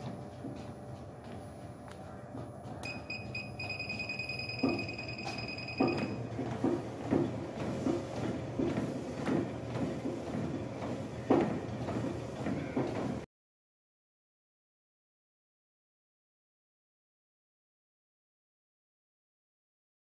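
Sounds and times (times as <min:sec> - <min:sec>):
footsteps thudding on treadmill belt: 0:00.0 - 0:13.3
treadmill running: 0:00.0 - 0:13.3
steady high tone: 0:02.8 - 0:06.2.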